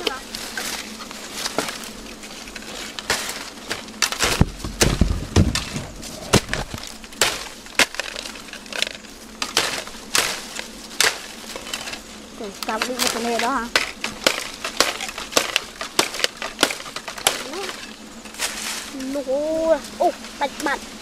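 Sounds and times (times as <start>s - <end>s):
dry bamboo crackling and snapping: 0.0s - 21.0s
heavy deep crunch: 2.6s - 12.1s.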